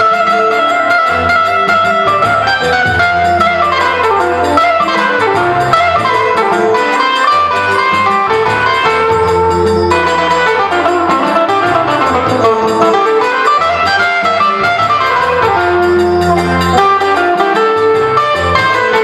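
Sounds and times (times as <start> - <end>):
plucked guitar melody: 0.0 - 19.0
steady bass line: 0.0 - 19.0.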